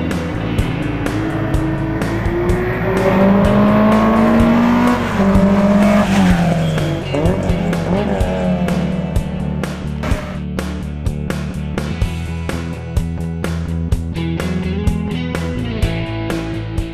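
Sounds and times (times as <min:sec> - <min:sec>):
rally car engine passing by: 0:00.0 - 0:10.4
background music with beat: 0:00.0 - 0:16.9.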